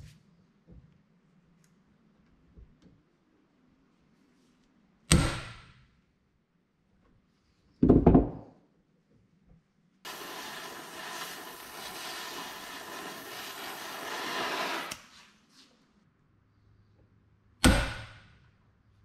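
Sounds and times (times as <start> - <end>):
gas torch flame hissing: 10.1 - 15.1.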